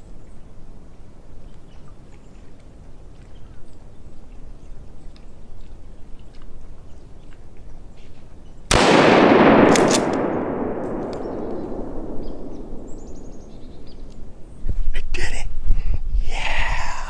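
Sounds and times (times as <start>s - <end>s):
rifle shot echoing: 8.7s - 14.5s.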